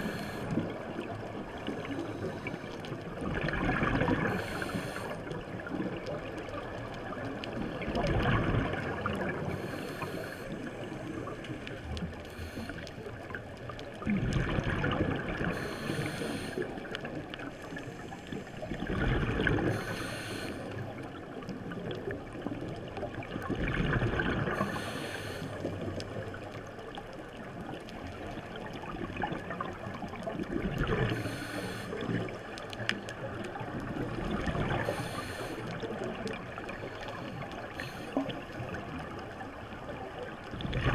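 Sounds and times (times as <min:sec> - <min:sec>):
underwater water noise: 0:00.0 - 0:40.9
diver's exhaled bubbles: 0:03.2 - 0:04.8, 0:07.7 - 0:09.8, 0:14.0 - 0:15.7, 0:18.7 - 0:19.9, 0:23.4 - 0:24.7, 0:30.4 - 0:31.3, 0:34.0 - 0:35.2, 0:40.5 - 0:40.9.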